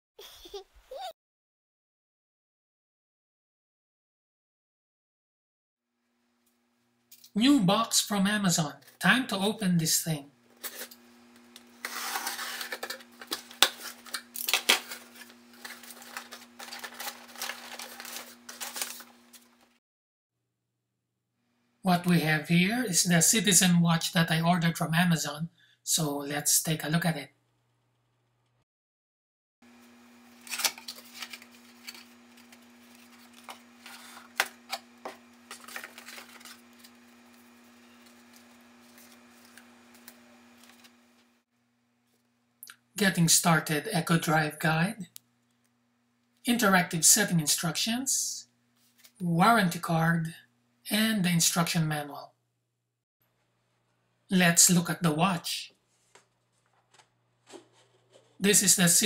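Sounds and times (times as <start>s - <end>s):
packing paper rustling: 10.6s - 19.8s, 29.8s - 41.4s, 55.8s - 58.4s
cardboard scraping and tapping: 56.1s - 58.4s.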